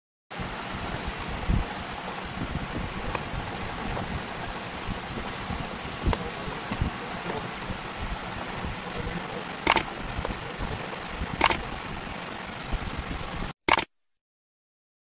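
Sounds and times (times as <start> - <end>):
steady hiss: 0.3 - 13.5.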